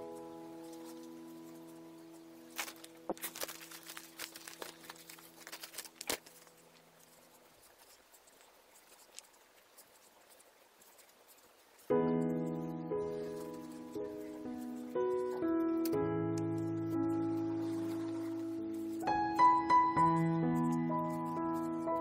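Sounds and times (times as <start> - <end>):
fabric strips rustling: 0.0 - 11.9.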